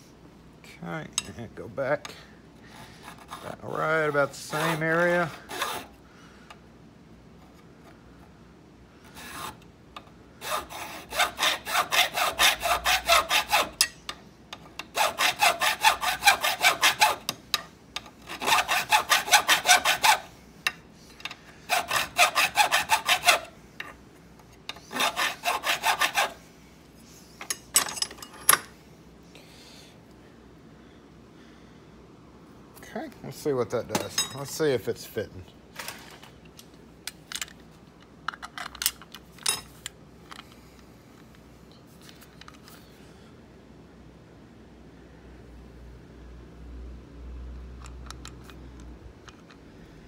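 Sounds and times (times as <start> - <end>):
hand file rasping on metal: 4.5 - 5.9, 9.2 - 9.6, 10.4 - 14.0, 14.8 - 17.4, 18.3 - 20.3, 21.7 - 23.6, 24.8 - 26.4.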